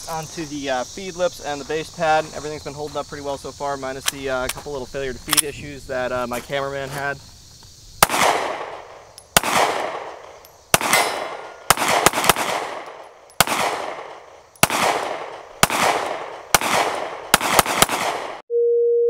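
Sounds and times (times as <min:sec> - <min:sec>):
pistol shots echoing: 0:08.0 - 0:18.4.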